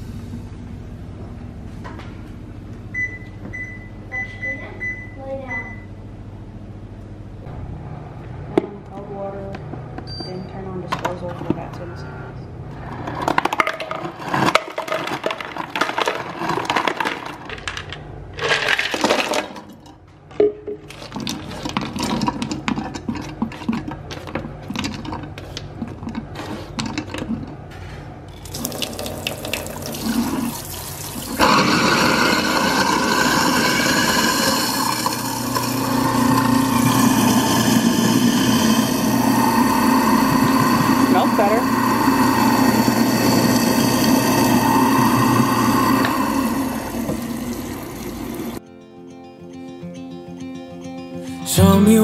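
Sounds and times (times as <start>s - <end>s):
ice cubes clattering: 13.2s - 19.8s, 20.9s - 23.6s
water rushing into sink: 28.4s - 48.6s.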